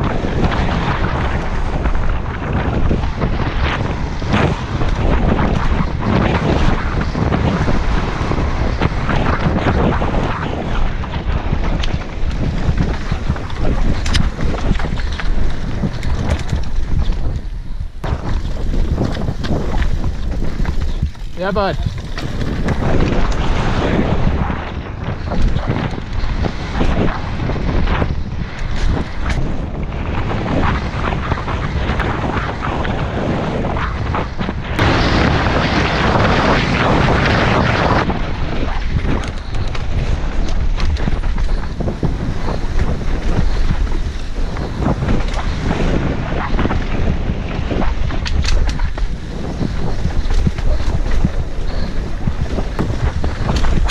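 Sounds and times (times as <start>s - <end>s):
wind buffeting camera: 0.0s - 53.9s
bike knocks and rattles: 11.0s - 23.6s, 25.1s - 29.5s, 38.9s - 47.1s, 47.7s - 53.9s
tyres rolling over dirt and rock: 12.2s - 23.5s.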